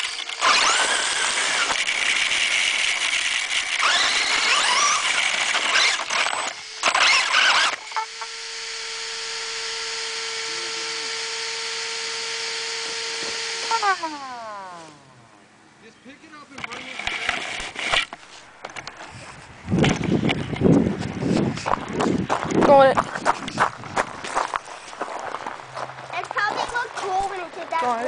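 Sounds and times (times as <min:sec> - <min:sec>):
rc car motor whine: 0:00.0 - 0:15.1, 0:16.5 - 0:21.8.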